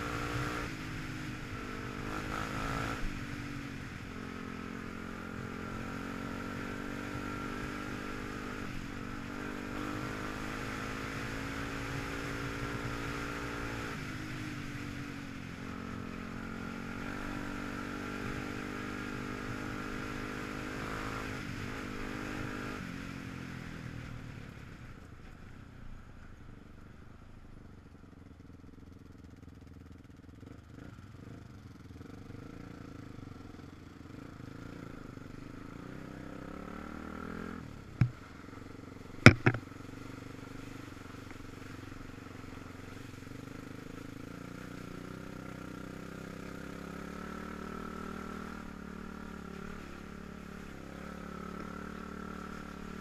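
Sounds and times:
quad bike engine running: 0.0 - 25.0, 26.2 - 53.0
sharp knocks: 39.2 - 39.6.

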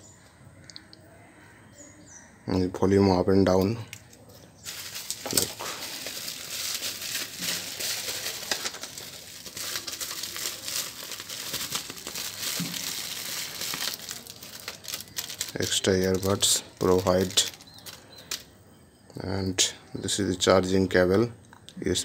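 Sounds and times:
bubble wrap crinkling: 4.6 - 18.5.

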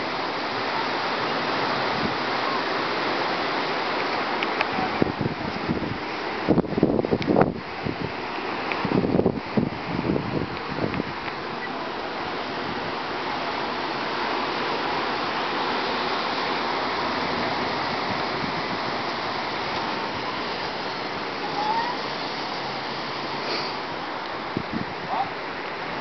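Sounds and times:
storm wind rushing through trees: 0.0 - 26.0.

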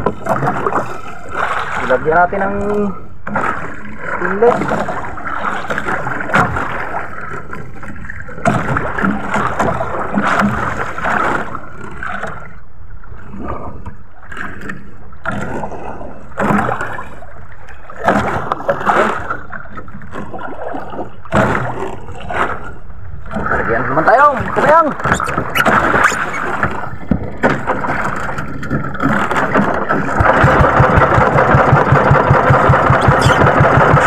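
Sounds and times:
water slapping against boat hull: 0.0 - 34.0.

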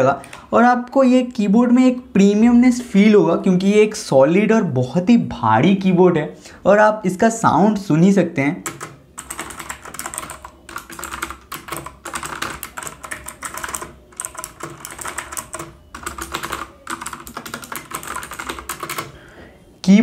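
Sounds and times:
mechanical keyboard typing: 8.6 - 19.2.

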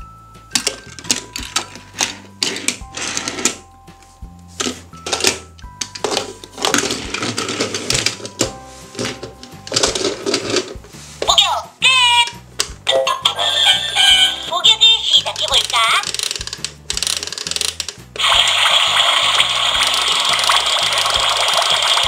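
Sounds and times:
simple background music: 0.0 - 22.0
plastic toys clattering on a table: 0.5 - 3.6, 4.6 - 10.8, 15.3 - 18.0.

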